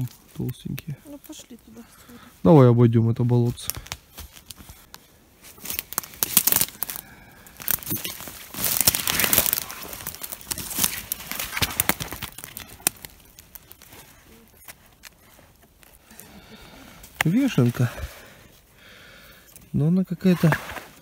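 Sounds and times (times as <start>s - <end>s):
footsteps through dry leaves: 4.1s - 14.6s.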